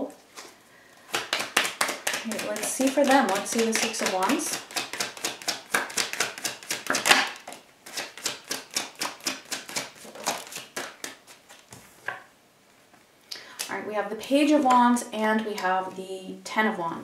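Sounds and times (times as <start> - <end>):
cards being shuffled: 1.1 - 12.2.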